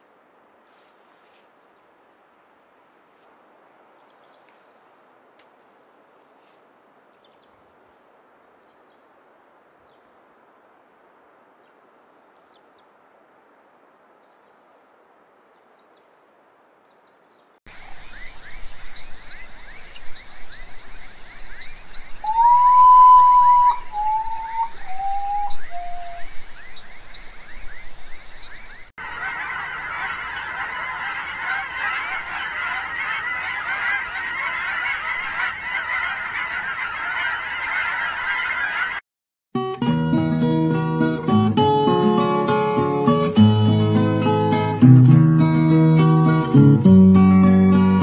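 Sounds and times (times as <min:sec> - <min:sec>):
faint steady hiss: 0:00.0 - 0:28.9
insects chirping: 0:17.7 - 0:28.9
bird singing mournful whistles: 0:18.0 - 0:28.8.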